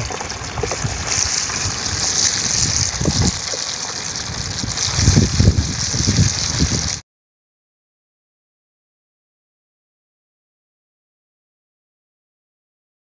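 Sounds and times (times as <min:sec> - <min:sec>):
fish sizzling in hot oil: 0:00.0 - 0:07.0.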